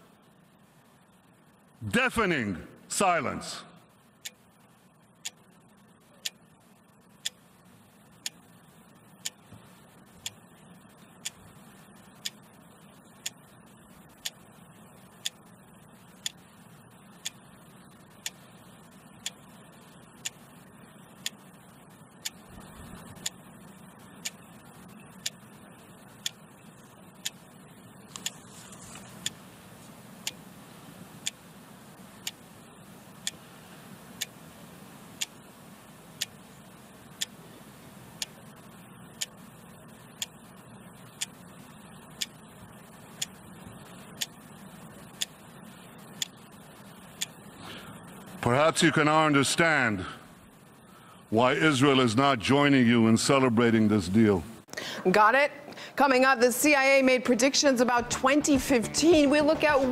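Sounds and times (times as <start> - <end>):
clock ticking: 4.2 - 4.5, 5.2 - 5.6, 6.2 - 7.4, 8.1 - 8.6, 9.2 - 9.5, 10.2 - 10.4, 11.2 - 11.4, 12.0 - 12.6, 13.2 - 13.5, 14.1 - 14.4, 15.1 - 15.4, 16.1 - 16.4, 17.2 - 17.5, 18.2 - 18.4, 19.2 - 19.5, 20.2 - 20.4, 21.2 - 21.4, 22.2 - 22.4, 23.2 - 23.4, 25.2 - 25.5, 26.2 - 26.4, 27.2 - 27.4, 33.2 - 33.4, 34.2 - 34.4, 35.2 - 35.4, 36.2 - 36.4, 42.2 - 42.4, 43.2 - 43.4, 44.2 - 44.4.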